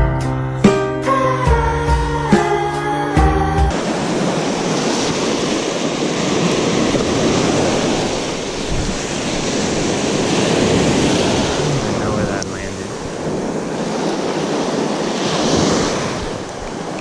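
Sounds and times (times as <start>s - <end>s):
surf breaking on sandy beach: 3.7s - 17.0s
wind buffeting microphone: 3.7s - 17.0s.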